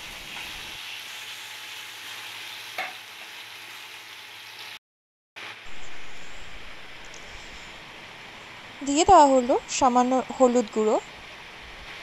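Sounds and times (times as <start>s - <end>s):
onions sizzling in hot oil: 0.0s - 4.8s.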